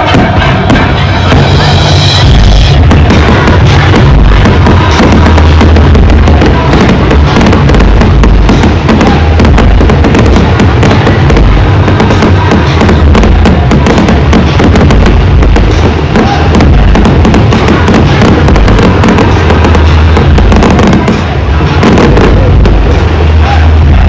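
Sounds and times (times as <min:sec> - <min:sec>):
fireworks crackling: 0:00.0 - 0:24.0
music with heavy bass: 0:00.0 - 0:24.0.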